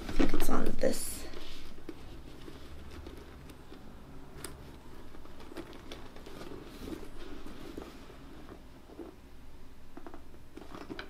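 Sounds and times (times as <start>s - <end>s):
rustling inside a handbag: 0.0s - 9.3s, 10.0s - 11.0s.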